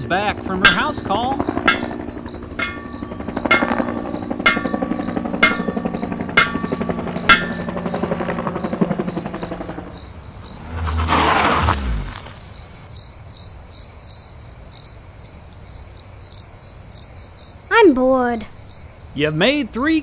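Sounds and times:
crickets chirping: 9.4s - 20.0s
whoosh with falling pitch: 10.5s - 12.9s.

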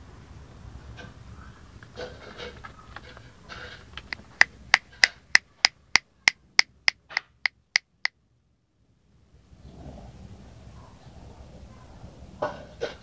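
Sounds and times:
sharp evenly spaced clicks: 4.0s - 6.0s, 6.6s - 8.1s.

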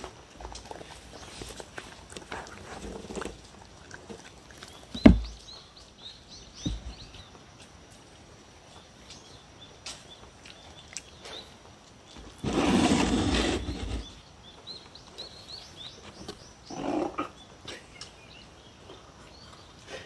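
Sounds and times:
dog chewing and licking: 0.3s - 5.5s.

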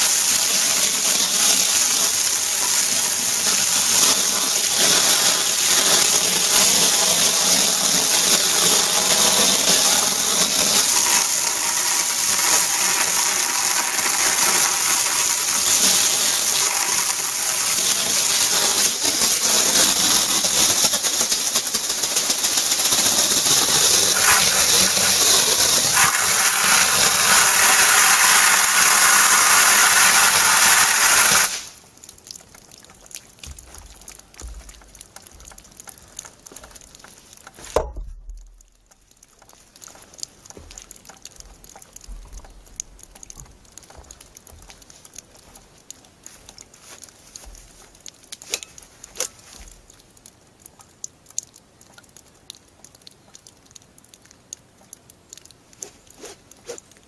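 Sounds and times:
high-pressure water jet hissing: 0.0s - 31.8s.

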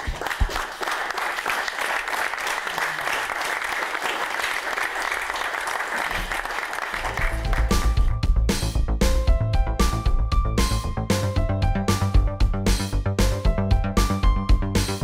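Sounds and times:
audience applauding: 0.0s - 8.2s
music: 6.9s - 15.0s.

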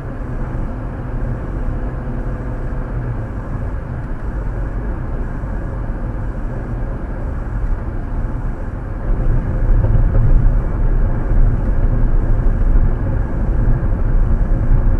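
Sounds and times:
tyre rumble inside car: 7.2s - 14.9s.

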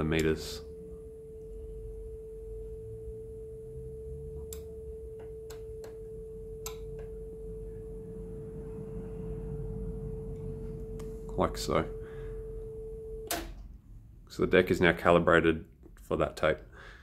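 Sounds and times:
calibration tone: 0.0s - 13.5s
low hum: 0.0s - 14.3s.

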